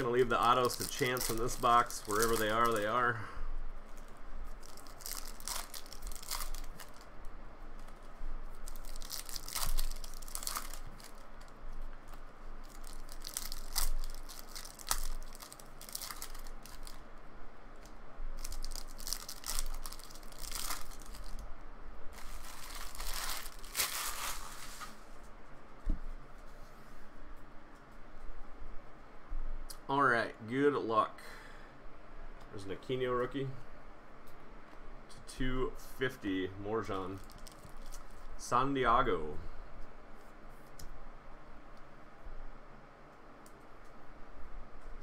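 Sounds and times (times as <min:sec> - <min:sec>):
foil wrappers tearing and crinkling: 0:00.0 - 0:03.1, 0:03.9 - 0:07.1, 0:08.6 - 0:11.5, 0:12.6 - 0:17.0, 0:18.4 - 0:21.4, 0:22.1 - 0:25.0, 0:37.1 - 0:38.3.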